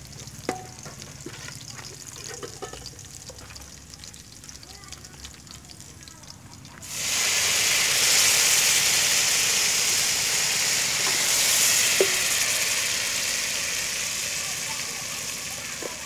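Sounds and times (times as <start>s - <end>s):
liquid sizzling in hot oil: 0.0s - 16.0s
ladle knocking on pot: 0.4s - 1.0s, 2.3s - 3.0s.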